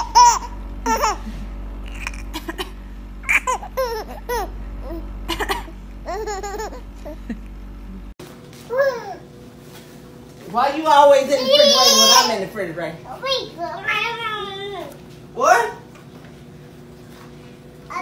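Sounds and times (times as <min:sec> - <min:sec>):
baby giggling: 0:00.0 - 0:07.5.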